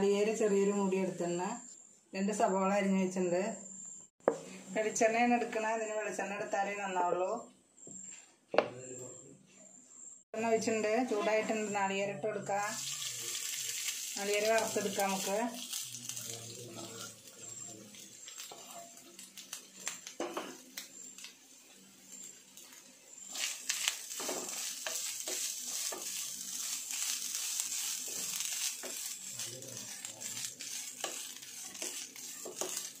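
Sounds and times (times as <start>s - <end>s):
coconut frying sizzle: 0.0s - 1.5s, 10.4s - 33.0s
spatula scraping pan: 14.5s - 19.6s, 21.7s - 33.0s.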